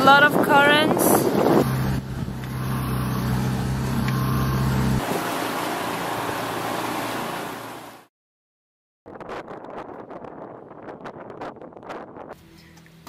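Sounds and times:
boat engine humming: 0:00.0 - 0:08.1
wind: 0:00.0 - 0:08.1, 0:09.1 - 0:13.0
rushing water: 0:04.9 - 0:08.1.

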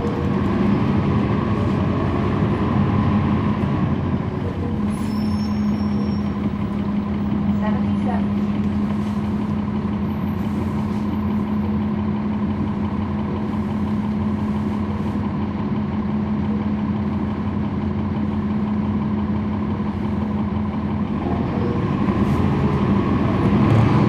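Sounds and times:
bus diesel engine running: 0:00.0 - 0:24.0.

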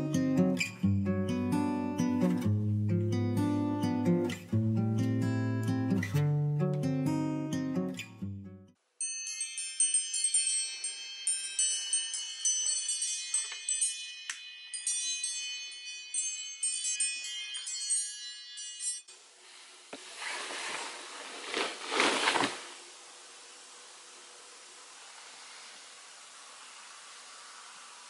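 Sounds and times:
bedding rustling: 0:19.2 - 0:23.2.

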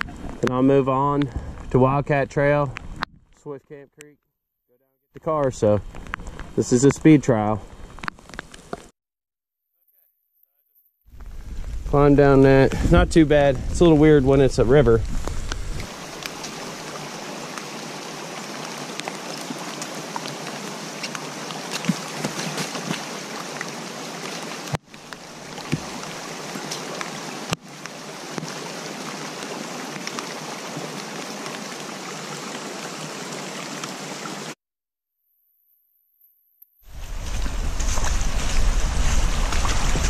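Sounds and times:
steady rain: 0:05.3 - 0:08.9, 0:11.2 - 0:34.6, 0:36.9 - 0:40.0
rainwater running: 0:11.2 - 0:34.6, 0:36.9 - 0:40.0.

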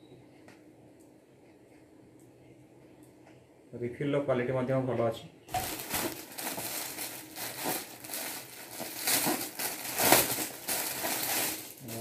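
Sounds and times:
plastic packaging crinkling: 0:05.5 - 0:12.0.

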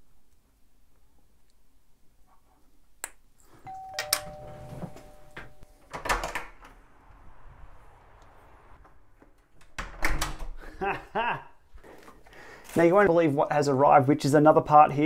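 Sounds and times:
two-note doorbell chime: 0:03.7 - 0:05.7.

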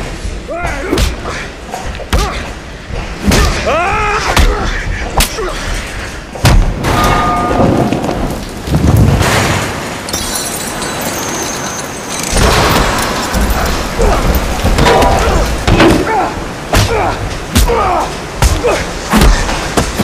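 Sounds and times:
punches and body impacts: 0:02.0 - 0:02.5, 0:03.2 - 0:05.5, 0:06.4 - 0:06.9, 0:13.4 - 0:20.0
grunts: 0:13.9 - 0:19.6.

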